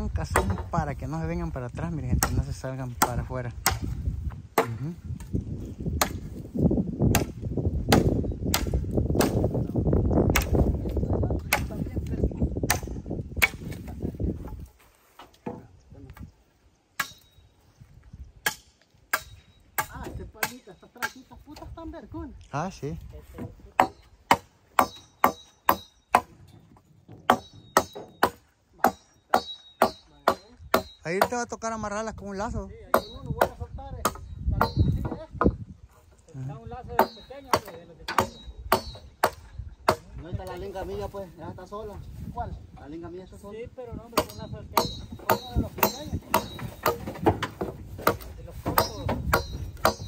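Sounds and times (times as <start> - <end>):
machete chopping into wood: 2.1 - 5.3, 5.9 - 6.4, 7.0 - 9.6, 10.3 - 11.8, 12.6 - 14.6, 17.0 - 17.4, 18.4 - 21.3, 23.3 - 26.4, 27.2 - 31.3, 37.0 - 40.1, 44.2 - 50.0.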